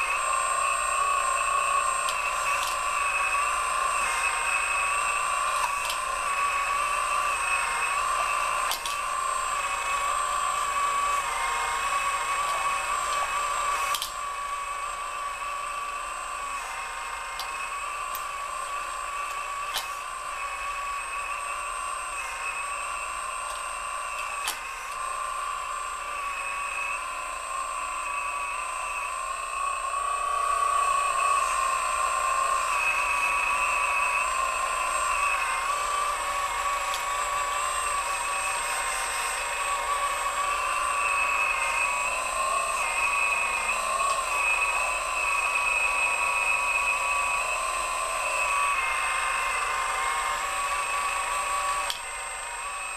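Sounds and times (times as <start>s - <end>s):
electric motor whining: 0.0s - 52.9s.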